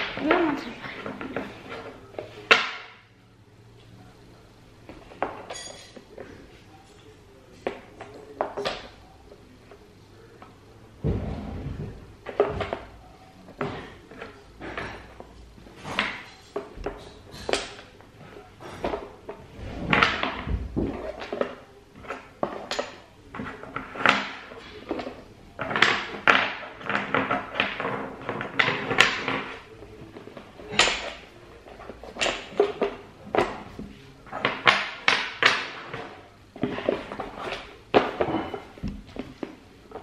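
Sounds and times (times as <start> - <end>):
wooden blocks clacking: 34.4 - 37.2.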